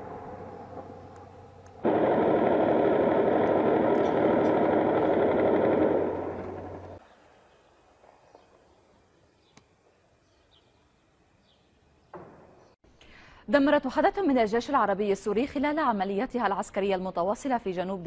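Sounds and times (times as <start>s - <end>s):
blast tail: 0.0s - 7.0s
roar of weapons fire: 1.8s - 7.0s.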